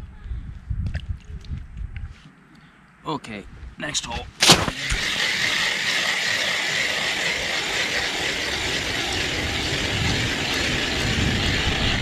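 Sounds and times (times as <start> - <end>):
ice auger scraping grind: 4.4 - 12.0.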